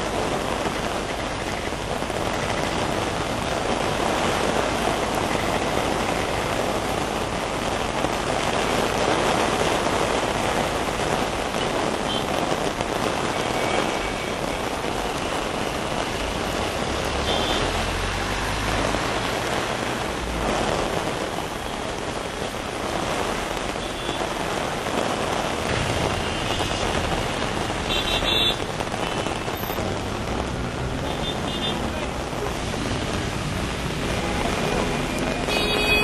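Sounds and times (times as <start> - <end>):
heavy rain hissing on water: 0.0 - 36.0
vehicles driving through water: 12.6 - 23.8, 25.5 - 36.0.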